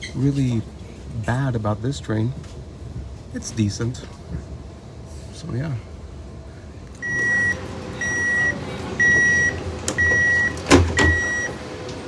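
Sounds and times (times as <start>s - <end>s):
door-closing warning beeps: 7.0s - 11.7s
sliding doors knocking shut: 9.9s - 11.4s.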